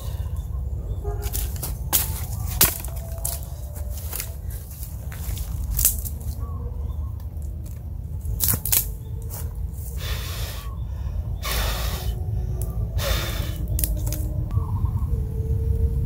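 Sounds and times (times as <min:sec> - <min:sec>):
wind rumble on microphone: 0:00.0 - 0:16.0
twigs snapping: 0:01.2 - 0:06.5, 0:07.2 - 0:10.1, 0:11.4 - 0:14.3
person blowing on fire: 0:10.0 - 0:10.7, 0:11.4 - 0:12.2, 0:13.0 - 0:14.0.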